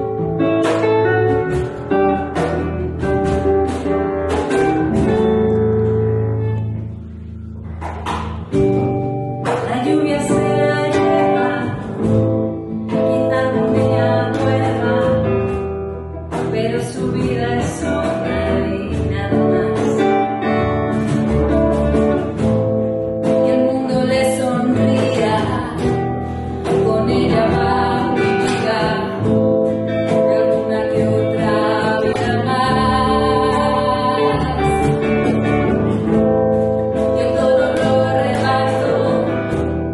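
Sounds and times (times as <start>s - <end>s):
acoustic guitar: 0.0s - 39.9s
hand percussion: 0.0s - 39.9s
upright double bass: 0.0s - 39.9s
women singing: 9.6s - 12.2s, 12.9s - 15.6s, 16.5s - 20.3s, 23.4s - 35.6s, 36.9s - 39.8s.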